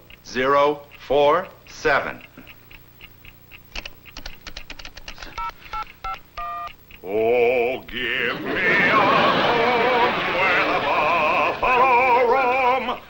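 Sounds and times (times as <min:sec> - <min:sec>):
keypad buttons clicking: 0:02.2 - 0:07.0
two-tone touch-tone beeps: 0:05.4 - 0:06.8.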